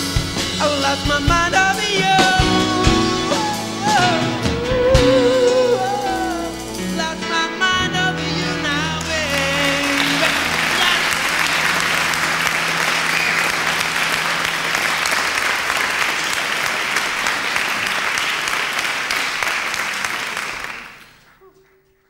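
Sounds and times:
audience applauding: 9.0 - 22.0.

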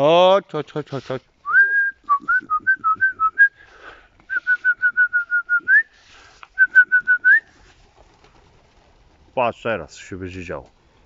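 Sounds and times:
person whistling short notes: 1.4 - 3.6, 4.3 - 7.5.

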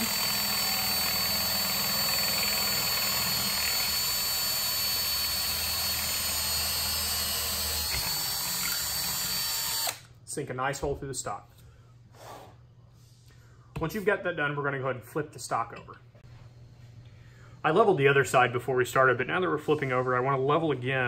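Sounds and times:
hand drill boring through fiberglass: 0.0 - 10.0.

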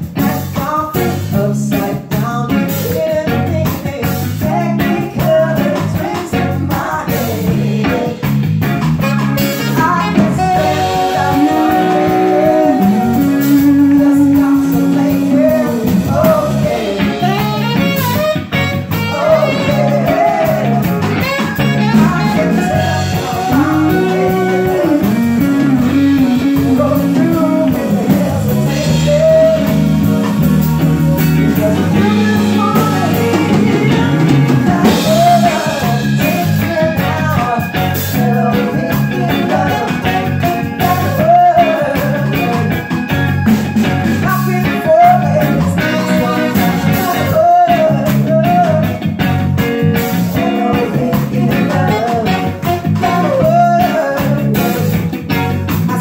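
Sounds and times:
electric bass: 0.0 - 56.0
live band playing: 0.0 - 56.0
woman singing into microphone: 9.8 - 17.4, 19.1 - 21.0, 31.6 - 36.0.

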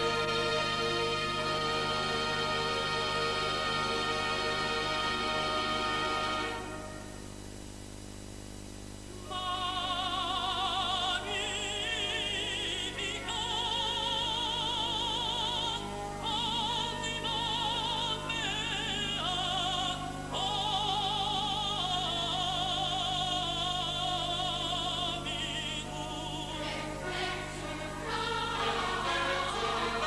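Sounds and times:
steady low hum: 0.0 - 30.0
operatic singing: 9.2 - 30.0.

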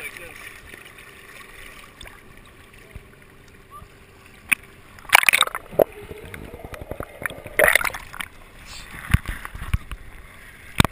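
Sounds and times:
loud splashes: 5.1 - 8.2.

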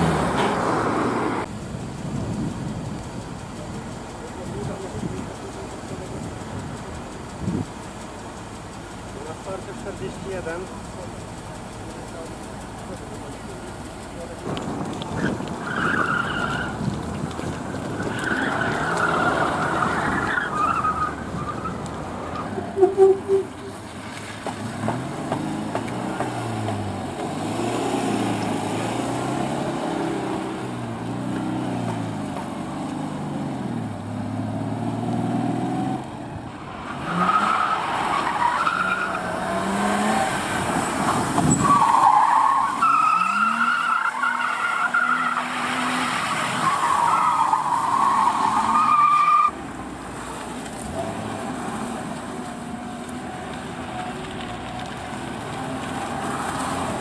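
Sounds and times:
car engine revving: 8.6 - 57.0
tyres squealing: 8.8 - 24.0, 36.5 - 50.0.

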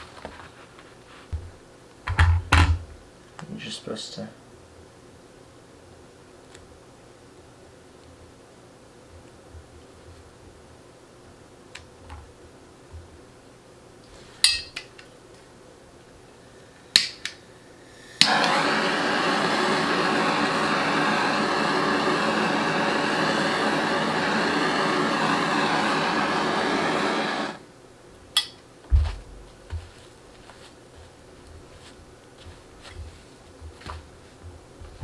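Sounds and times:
torch flame hissing: 16.3 - 27.7.

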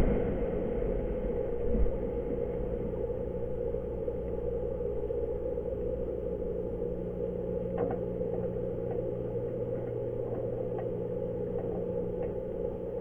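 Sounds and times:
underwater hum and rush: 0.0 - 13.0
faint clicks: 7.7 - 12.7.

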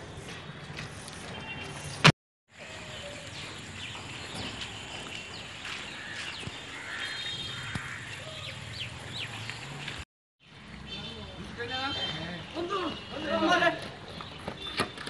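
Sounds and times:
birds chirping: 2.6 - 13.2.

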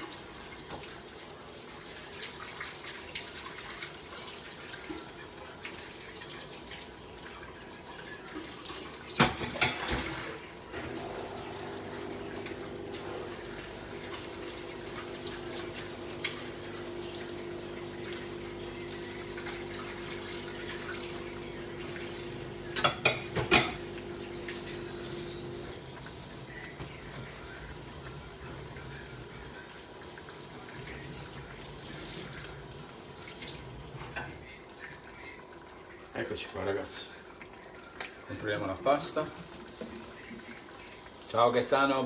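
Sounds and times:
pots bubbling: 0.0 - 42.0
pots and dishes clattering: 8.5 - 16.6, 19.2 - 25.6, 33.9 - 34.4.

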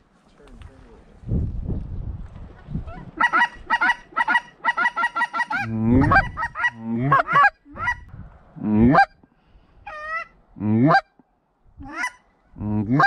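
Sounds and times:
geese honking and clucking: 2.9 - 9.2, 9.8 - 11.2, 11.8 - 13.0.

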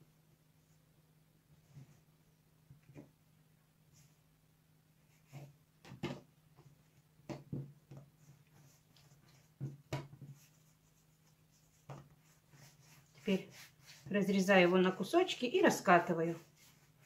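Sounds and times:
dough soft thuds and rubs: 5.2 - 15.0.

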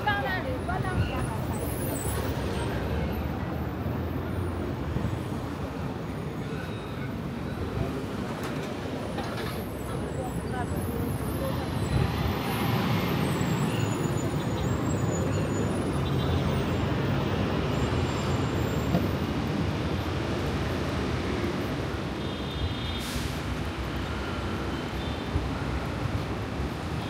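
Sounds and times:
cars and buses passing: 0.0 - 27.0
brief hiss: 22.9 - 23.6.

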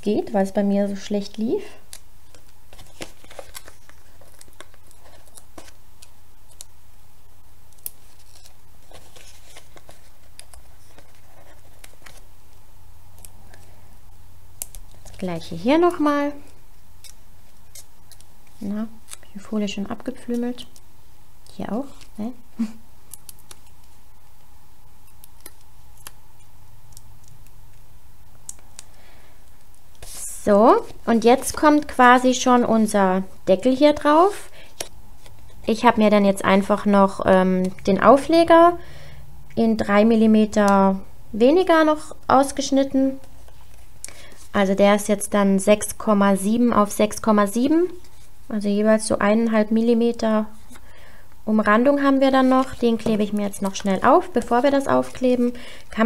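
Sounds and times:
low steady hum: 0.0 - 56.0
paper rustling: 2.2 - 6.7, 7.8 - 12.3, 29.9 - 33.0, 51.9 - 56.0.

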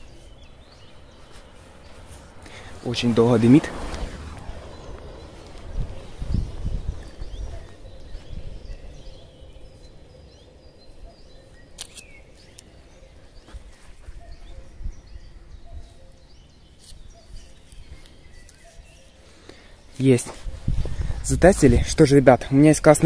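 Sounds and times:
wind rumbling on microphone: 0.0 - 13.4, 14.0 - 16.0, 20.4 - 23.0
small birds chirping: 0.0 - 23.0.

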